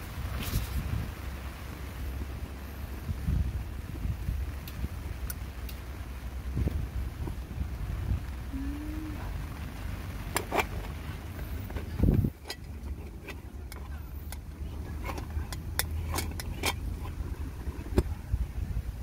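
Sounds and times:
steady low rumble: 0:00.0 - 0:19.0
metal clinks of moka pot: 0:12.3 - 0:17.3.

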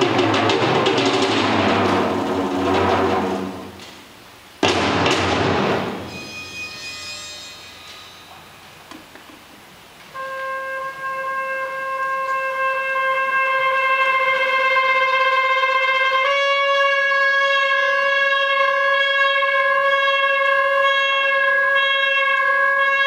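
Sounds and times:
orchestral percussion crash: 0:00.0 - 0:08.7.

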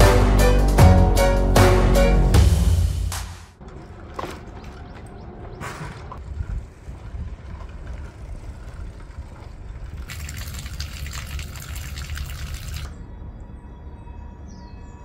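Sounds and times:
background music: 0:00.0 - 0:03.6
water splashing into stone basin: 0:10.1 - 0:12.9.

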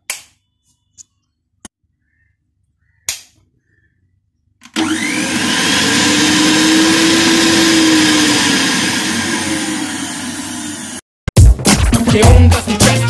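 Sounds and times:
mixer grinder motor running: 0:04.6 - 0:11.0.

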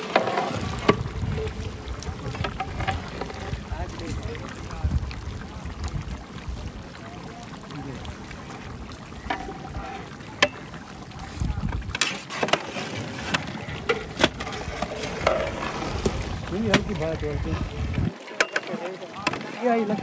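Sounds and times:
wind rumbling on microphone: 0:00.0 - 0:12.1, 0:12.7 - 0:18.2
ladle stirring curry: 0:08.2 - 0:16.9.

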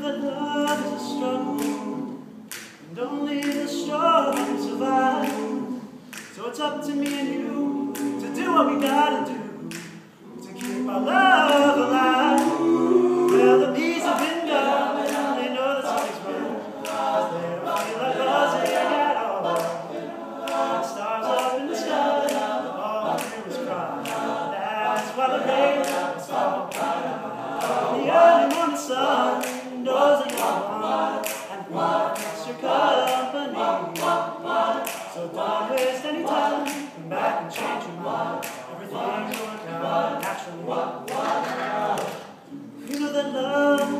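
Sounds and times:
male a cappella harmony singing: 0:00.0 - 0:43.9
steady clicking beat: 0:07.0 - 0:14.4.

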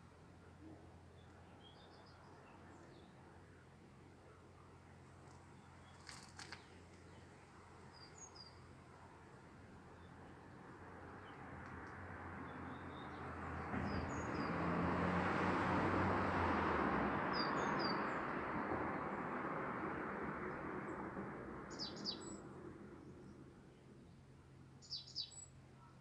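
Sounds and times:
small birds chirping: 0:21.7 - 0:22.4, 0:24.8 - 0:25.6.

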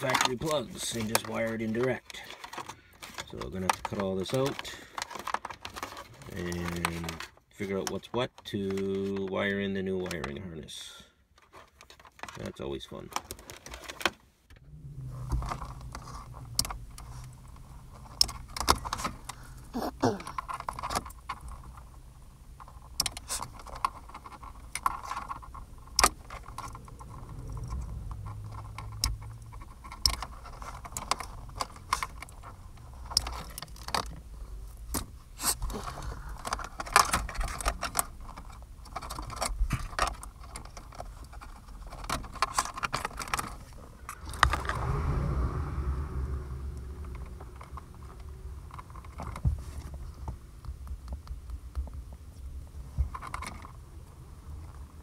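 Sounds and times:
wires rattling and rustling: 0:00.0 - 0:10.2, 0:11.4 - 0:45.9, 0:46.6 - 0:55.0
low rumble: 0:14.5 - 0:19.8, 0:25.6 - 0:30.4, 0:43.9 - 0:51.2.

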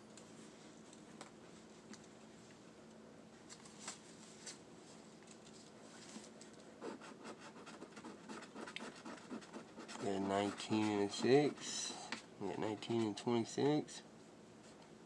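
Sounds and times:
scratching lottery ticket: 0:06.8 - 0:12.0.

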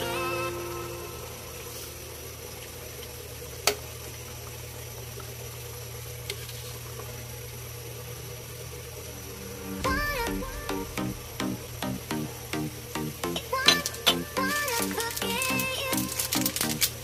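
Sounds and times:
low hum: 0:07.6 - 0:17.0.

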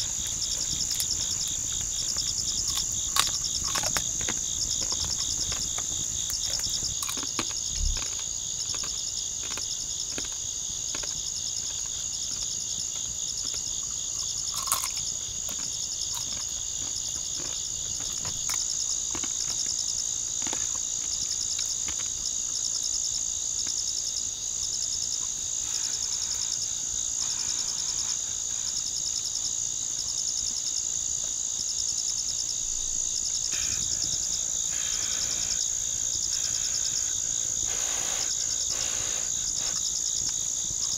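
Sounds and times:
fast pulsing insect trill: 0:00.0 - 0:10.0, 0:31.6 - 0:40.9
high-pitched insect trill: 0:00.0 - 0:40.9.

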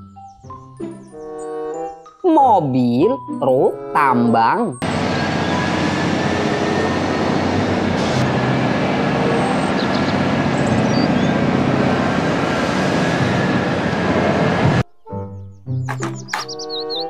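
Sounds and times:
diesel truck engine drone: 0:03.3 - 0:14.8.

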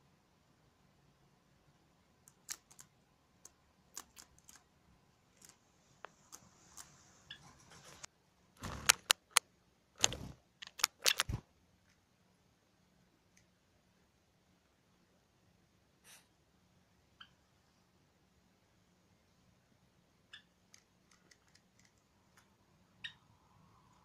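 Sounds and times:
bird claws and beak tapping: 0:02.3 - 0:04.7, 0:08.6 - 0:09.4, 0:10.0 - 0:11.4, 0:20.4 - 0:22.5.

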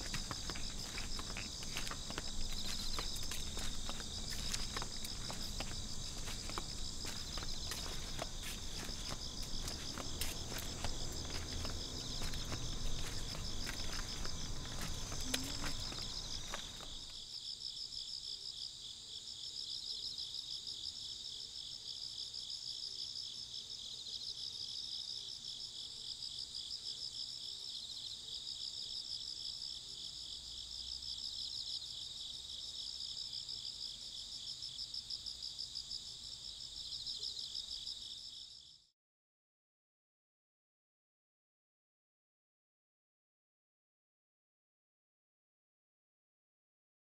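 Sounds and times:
insects trilling: 0:00.0 - 0:18.7.

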